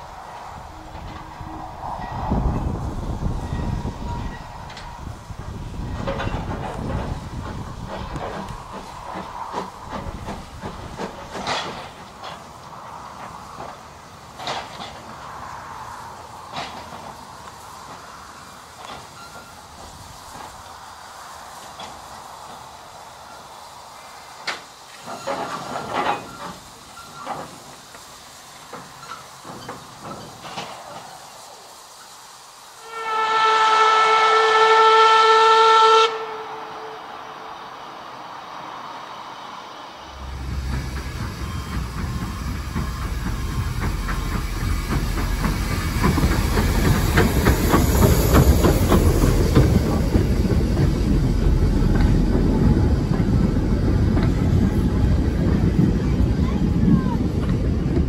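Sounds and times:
steam locomotive hissing steam: 0.0s - 58.0s
train rumbling: 0.0s - 58.0s
train wheel clicks: 3.4s - 20.7s, 24.4s - 31.3s, 40.2s - 58.0s.

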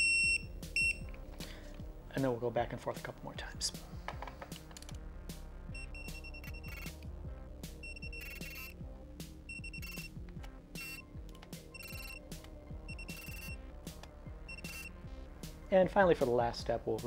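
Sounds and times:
background music with steady beat: 0.0s - 17.0s
torque wrench rapid high beeps: 5.8s - 7.0s, 7.8s - 8.7s, 9.5s - 10.2s, 10.8s - 11.1s, 11.7s - 12.2s, 12.8s - 13.6s, 14.5s - 14.9s.

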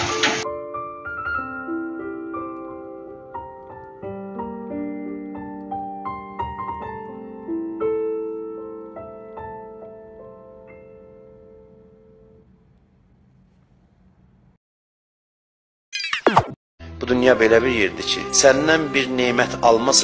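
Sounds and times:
slow gentle piano music: 0.0s - 13.7s.

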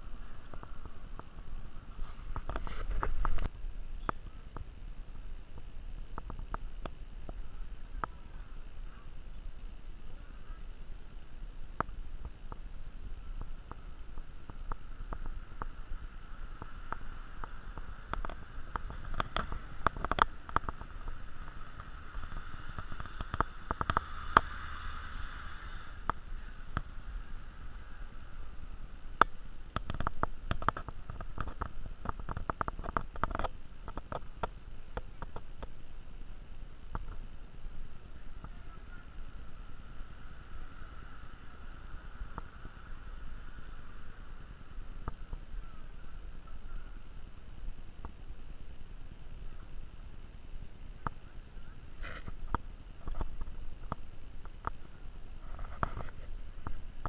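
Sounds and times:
low outdoor rumble: 0.0s - 57.0s.

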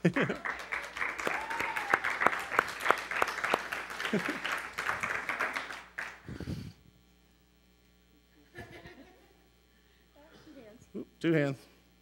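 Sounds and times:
congregation applauding: 0.0s - 6.5s.

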